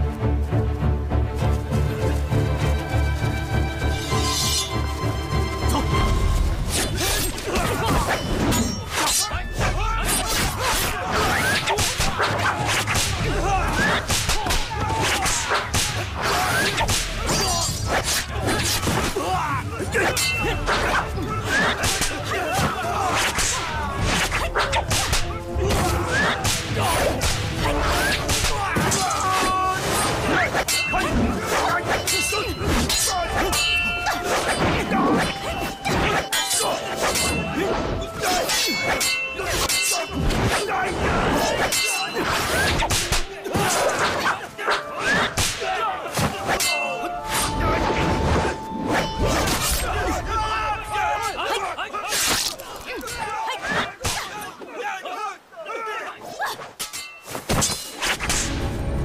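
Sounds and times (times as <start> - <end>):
low background music: 0.0 - 51.8, 58.2 - 59.0
sword blades clanging: 4.1 - 4.8, 20.0 - 22.3, 27.3 - 50.1, 56.8 - 58.5.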